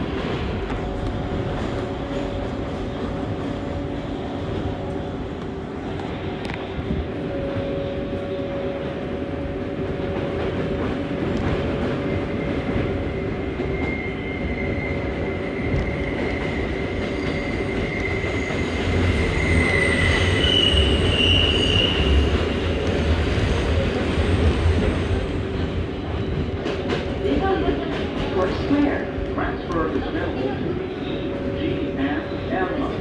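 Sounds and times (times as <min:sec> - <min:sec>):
subway train rumble: 0:00.0 - 0:33.0
high wheel squeal: 0:13.6 - 0:22.7.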